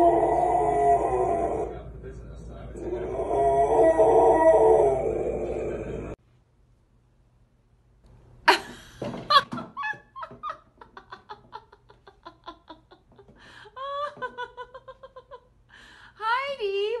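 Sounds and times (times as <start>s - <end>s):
woman laughing hard: 8.5s - 15.5s.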